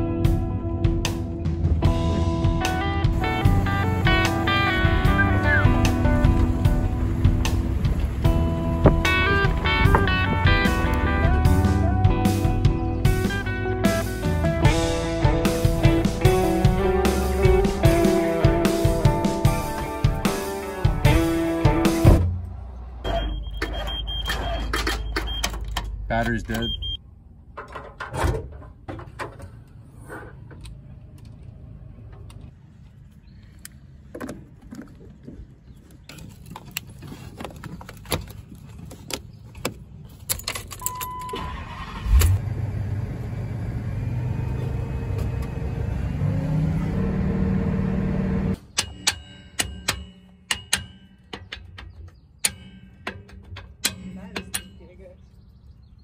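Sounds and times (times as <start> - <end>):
engine cranking and revving: 1.9 - 23.0, 41.4 - 48.6.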